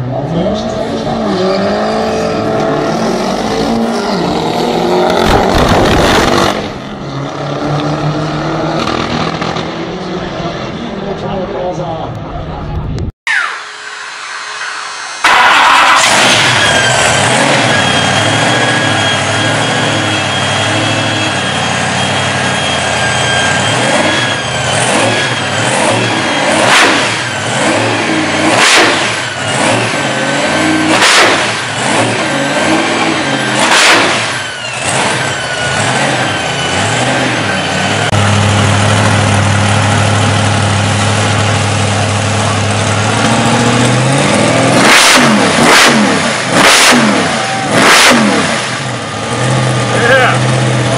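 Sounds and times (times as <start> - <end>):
engine revving: 0.0 - 11.5, 13.3 - 50.9
engines idling with high whine: 0.0 - 50.9
deeper engine idling: 34.5 - 44.7.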